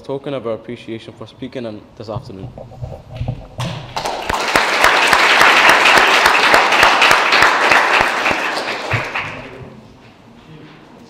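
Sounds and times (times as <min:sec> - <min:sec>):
audience applauding: 0:03.6 - 0:09.6.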